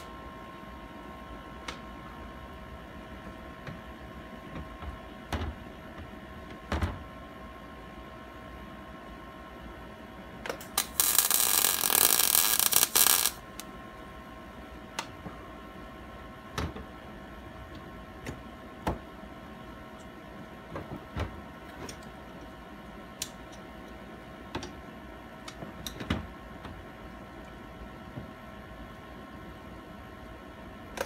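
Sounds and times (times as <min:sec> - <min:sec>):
arc welding crackle: 0:10.5 - 0:13.7.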